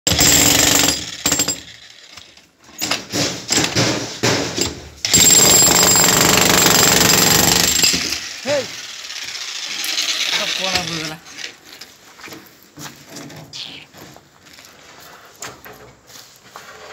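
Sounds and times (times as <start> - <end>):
demolition hammer breaking concrete: 0.1 - 1.7, 3.2 - 8.2.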